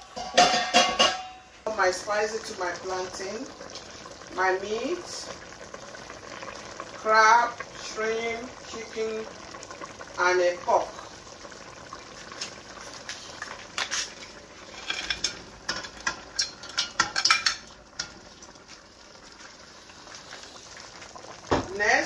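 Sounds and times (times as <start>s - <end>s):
pot hissing: 0.0s - 22.0s
spatula scraping a plate and pot: 13.8s - 15.4s.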